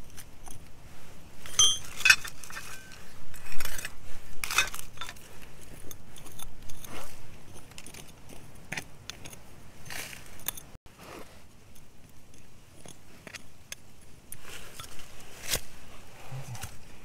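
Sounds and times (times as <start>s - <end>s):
metal tool scraping gravelly soil: 1.4s - 8.6s.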